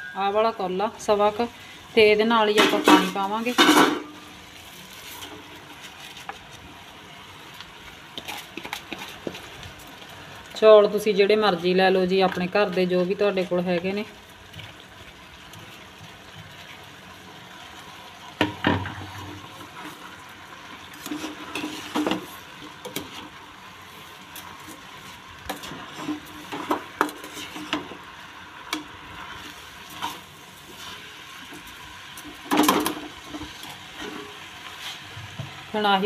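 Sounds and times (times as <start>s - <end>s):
low sizzle: 0.0s - 36.0s
metal spoon scraping a pan: 21.0s - 23.3s, 25.5s - 28.0s, 29.3s - 31.6s, 32.2s - 35.1s.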